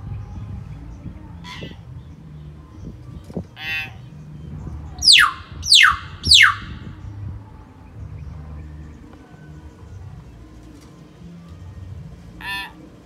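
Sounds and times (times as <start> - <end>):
low background rumble: 0.0 - 13.0
bird harsh call: 5.0 - 6.7.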